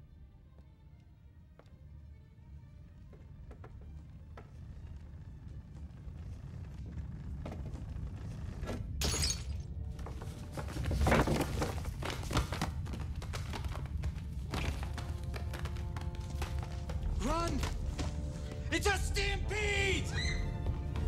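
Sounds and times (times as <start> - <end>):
orchestral film music: 14.4 - 21.0.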